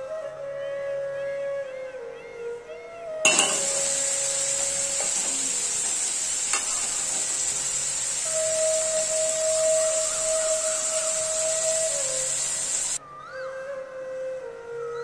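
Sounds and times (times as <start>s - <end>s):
faint flute music: 0.0s - 15.0s
metal spatula knocking pan: 3.3s - 3.8s
food sizzling in a pan: 3.3s - 13.0s.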